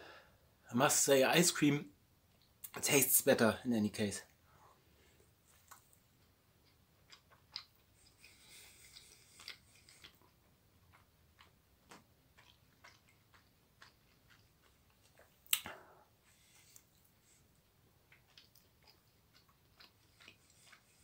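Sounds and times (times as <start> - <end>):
person chewing: 5.5 - 21.0.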